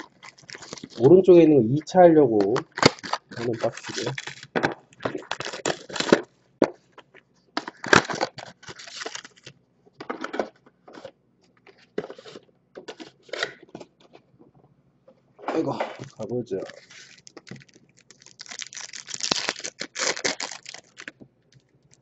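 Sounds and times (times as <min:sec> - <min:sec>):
foil card packs rustling: 0:00.0 - 0:01.2, 0:02.4 - 0:06.3, 0:07.6 - 0:09.5, 0:15.6 - 0:21.2.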